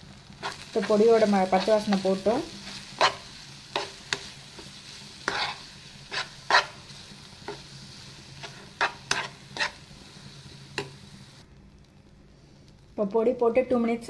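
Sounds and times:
paste sizzling: 0.0s - 11.5s
spatula scraping frying pan: 0.3s - 10.1s.

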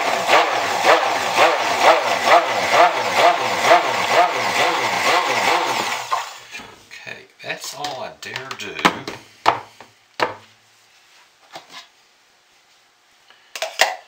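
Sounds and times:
stick blender running: 0.0s - 6.7s.

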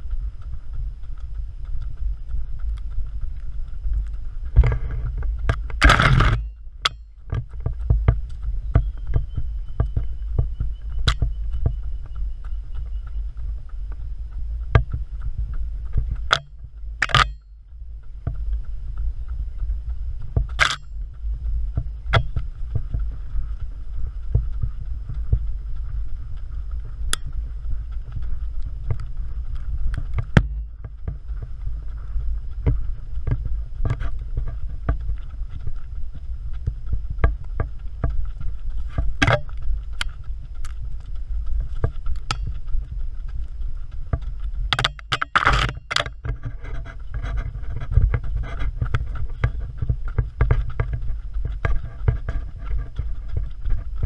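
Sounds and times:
footfalls on dirt trail: 0.0s - 54.0s
wind rumble: 0.0s - 54.0s.

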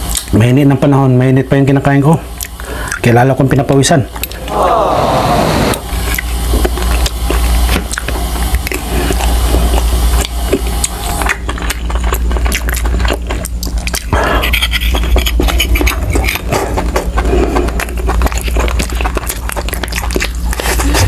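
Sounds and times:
wet chewing: 2.4s - 3.0s, 5.8s - 21.0s
low hum: 4.1s - 21.0s.

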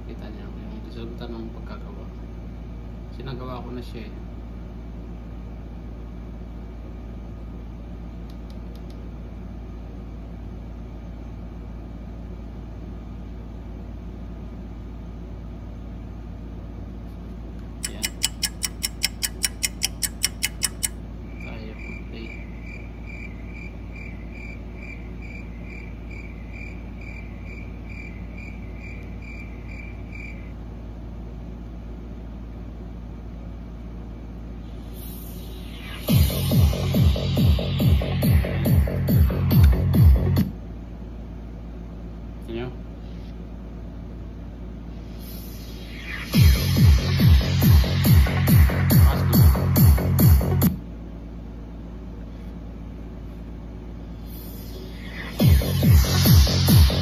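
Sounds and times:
steady low hum: 0.0s - 57.0s
high electronic chirp pulsing: 17.8s - 30.6s, 34.5s - 40.5s, 44.9s - 50.7s, 53.8s - 57.0s.

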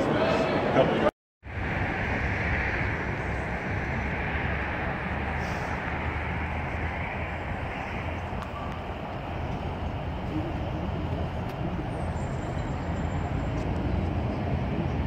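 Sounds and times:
crowd talking: 0.0s - 1.1s, 7.6s - 15.0s.

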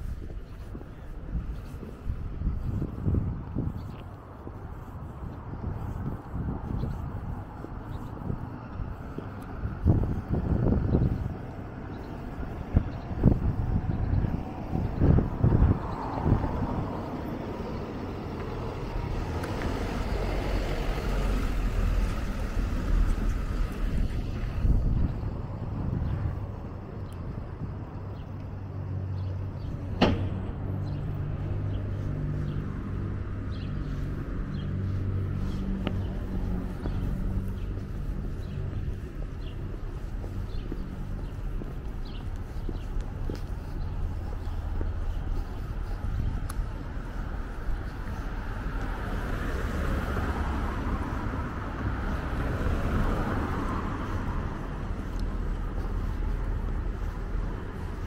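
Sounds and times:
traffic engine hum: 0.0s - 58.0s
wind rumbling on microphone: 0.0s - 58.0s
car passing by: 7.5s - 26.2s, 28.7s - 41.4s, 42.0s - 58.0s
sharp knock: 30.0s - 30.5s.

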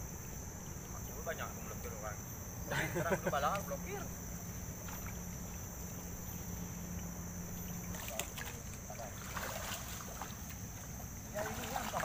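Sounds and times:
high insect drone: 0.0s - 12.0s
water sloshing around wading legs: 4.6s - 12.0s.

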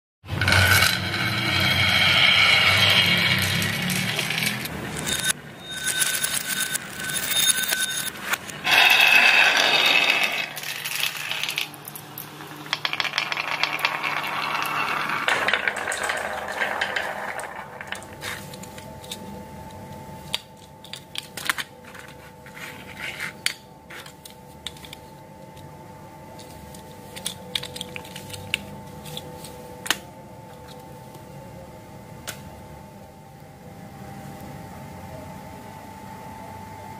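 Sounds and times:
marbles rolling down wooden ramp: 0.4s - 5.3s, 8.7s - 12.0s, 12.6s - 18.4s
faint steady hum: 0.4s - 36.9s
marbles dropping into glass bowl: 8.7s - 18.7s.

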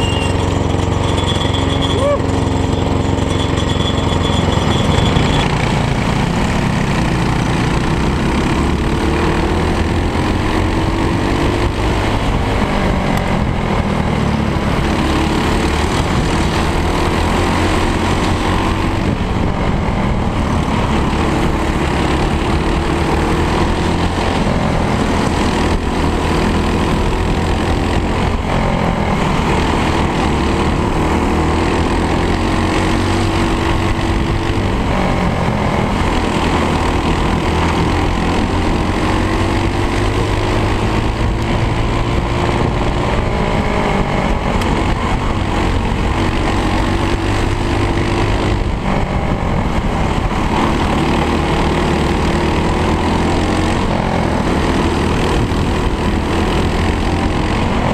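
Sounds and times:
racing kart engine: 0.0s - 57.9s.

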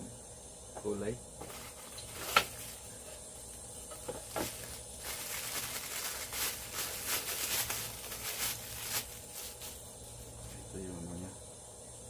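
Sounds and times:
packaging rustling and crinkling: 1.4s - 2.9s, 4.0s - 9.9s.

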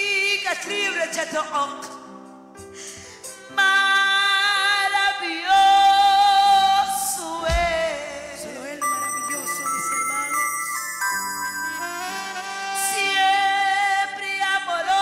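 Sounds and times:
woman singing into microphone: 0.0s - 2.1s, 3.4s - 10.5s, 11.7s - 15.0s
instrumental backing: 0.6s - 15.0s
low thump: 7.5s - 8.1s.

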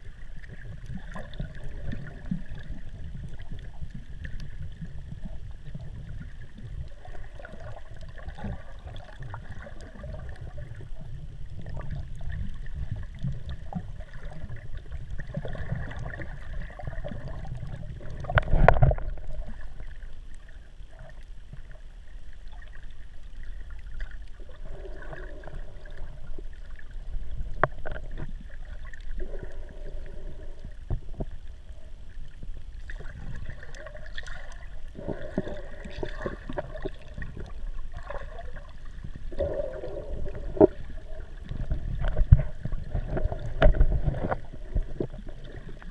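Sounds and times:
underwater water sloshing: 0.0s - 45.9s.

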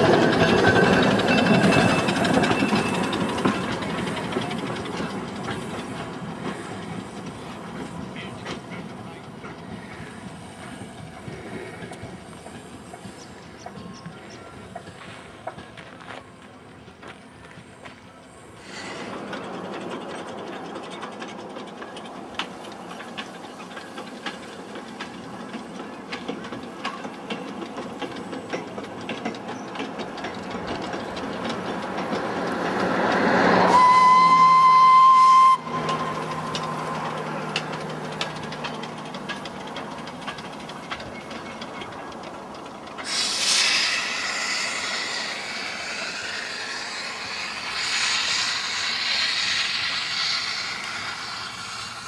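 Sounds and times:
steady steam hiss: 0.0s - 52.0s
steam locomotive chuffing: 0.0s - 52.0s
steam whistle: 33.6s - 36.8s.

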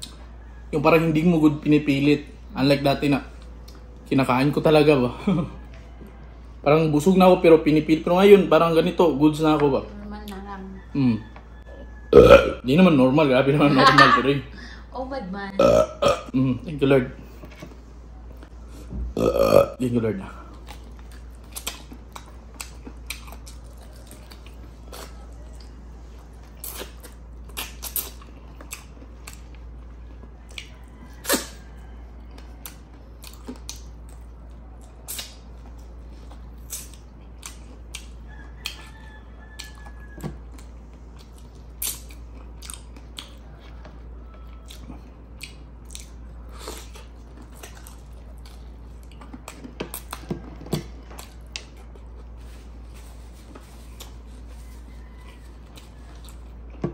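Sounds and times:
person chewing: 12.1s - 12.5s, 15.6s - 16.3s, 18.3s - 19.7s, 20.4s - 39.0s, 39.6s - 56.9s
lip smacks: 26.6s - 29.4s, 34.9s - 35.5s.

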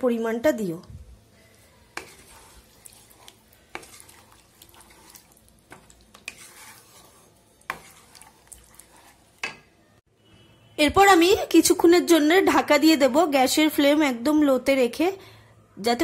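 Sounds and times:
spatula stirring liquid in pan: 1.4s - 9.8s.

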